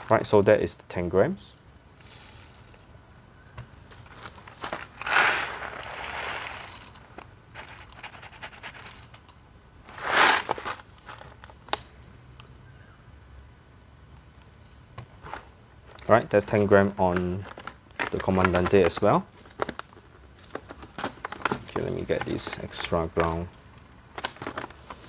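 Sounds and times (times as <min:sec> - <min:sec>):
foil bag crinkling: 0:04.0 - 0:06.9, 0:09.9 - 0:11.6, 0:16.4 - 0:23.5
coffee beans pouring: 0:04.8 - 0:07.0, 0:09.9 - 0:11.2
single beans clicking: 0:05.0 - 0:10.5.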